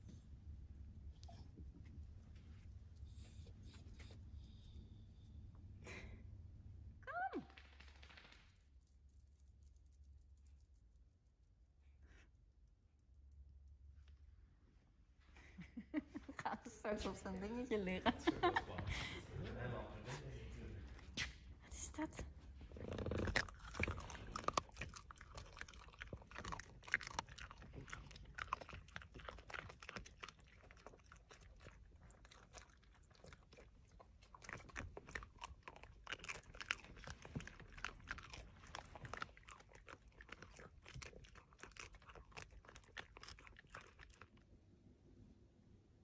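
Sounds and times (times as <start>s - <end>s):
dog crunching chew stick: 22.6s - 44.4s.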